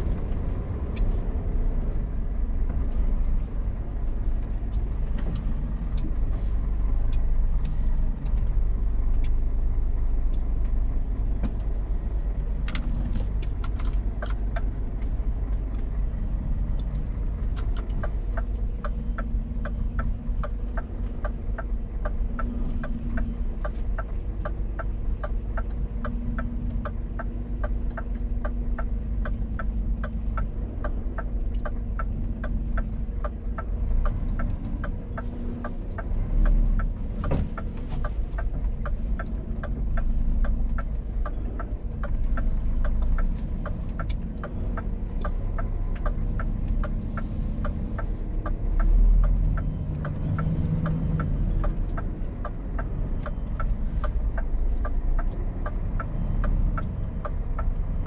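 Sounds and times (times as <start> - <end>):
lorry diesel engine rumbling: 0.0 - 58.0
regular clicking: 16.7 - 58.0.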